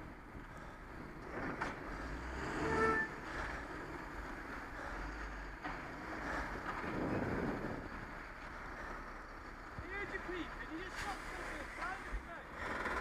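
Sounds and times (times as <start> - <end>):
diesel engine rumbling: 0.0 - 13.0
wind noise on microphone: 6.2 - 8.2.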